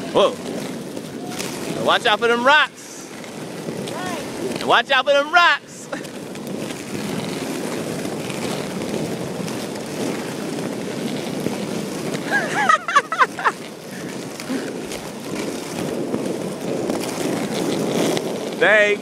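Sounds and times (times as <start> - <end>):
skate wheels rolling on asphalt: 0.0 - 19.0
person shouting: 3.9 - 4.3.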